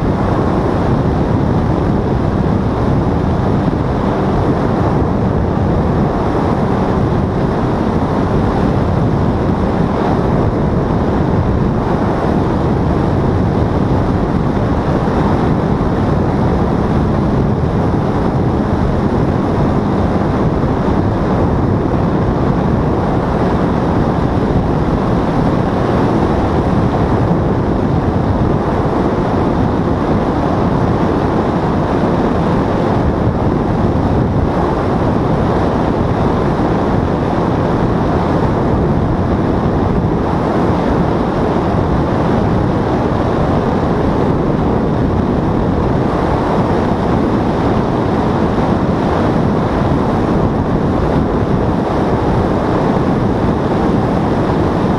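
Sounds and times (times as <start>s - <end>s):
paramotor engine and propeller: 0.0s - 54.9s
wind rush on microphone: 0.0s - 54.9s.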